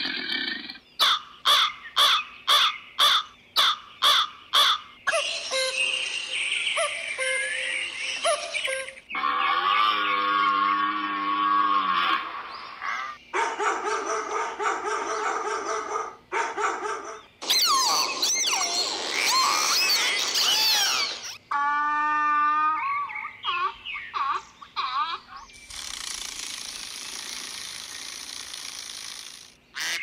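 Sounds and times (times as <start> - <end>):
animal calls: 0.0 - 30.0
dolphins whistling and squeaking: 5.1 - 10.8, 17.4 - 21.4.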